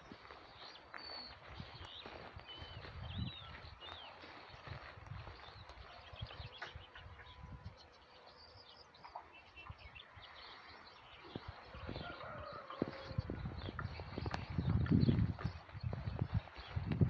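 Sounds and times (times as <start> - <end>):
footsteps through grass: 0.0 - 7.1, 10.5 - 17.0
small birds chirping: 0.0 - 17.0.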